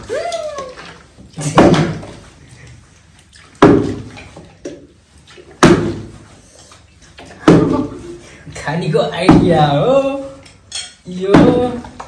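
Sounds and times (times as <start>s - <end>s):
plastic bottle thudding on floor: 1.4s - 2.2s.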